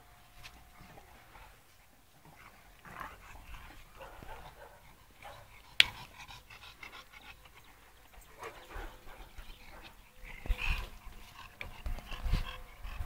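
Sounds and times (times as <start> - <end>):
dogs panting: 0.0 - 13.0.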